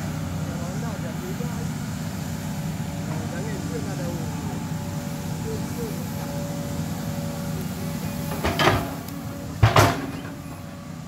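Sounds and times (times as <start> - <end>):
excavator diesel engine running: 0.0 - 11.0
loud clunks: 8.2 - 10.7.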